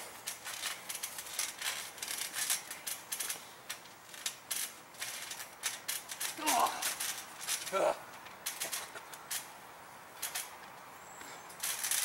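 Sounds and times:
trampoline springs creaking: 0.0 - 12.0.

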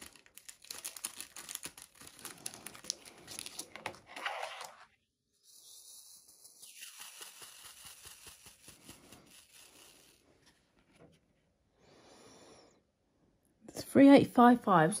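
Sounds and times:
plastic bag rustling: 0.0 - 4.6.

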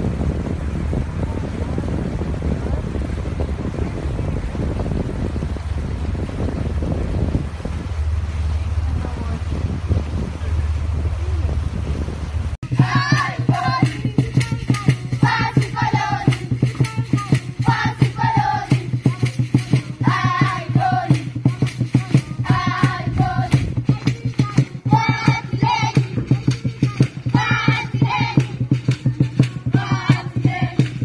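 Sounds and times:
fast percussive beat: 12.6 - 31.0
young voices chanting in chorus: 12.7 - 16.5, 17.3 - 28.8.

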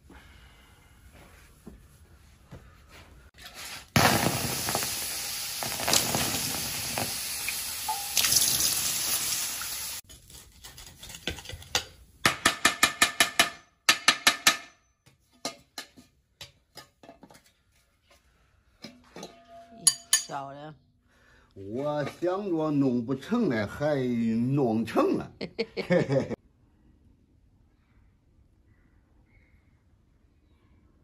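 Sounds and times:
water hissing on hot metal: 3.4 - 10.0
knife scraping and tapping: 10.1 - 12.0.

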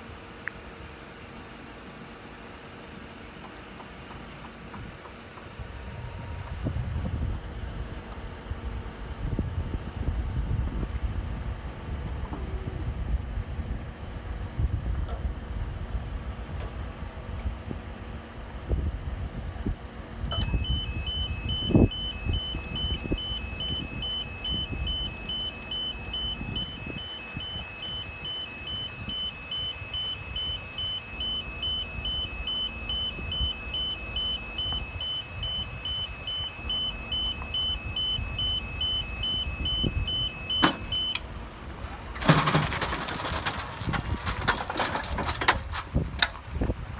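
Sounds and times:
lift alarm beeping rapidly: 20.2 - 41.4.

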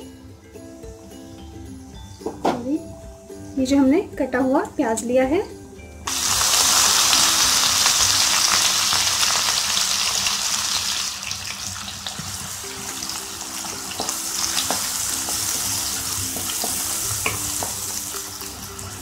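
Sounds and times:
onion sizzling in hot oil: 6.1 - 19.0.

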